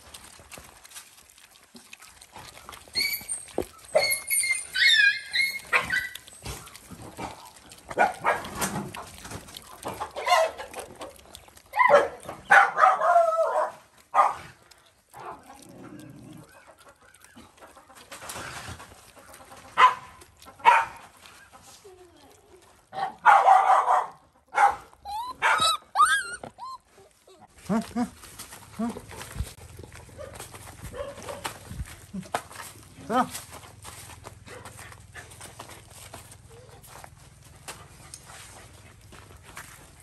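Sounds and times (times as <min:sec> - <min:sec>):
high-pitched animal cries and yelps: 0:02.5 - 0:06.4, 0:11.6 - 0:13.5, 0:24.7 - 0:28.0.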